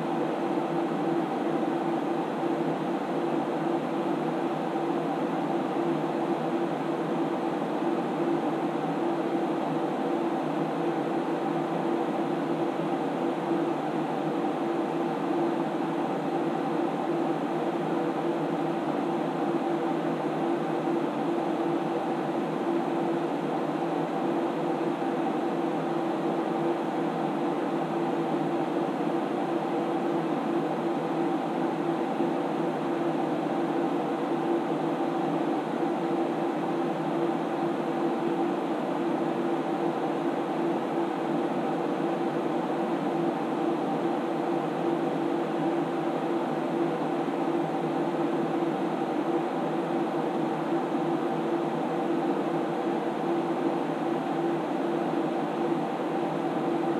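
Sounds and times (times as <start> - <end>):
computer cooling fans whirring: 0.0 - 56.9.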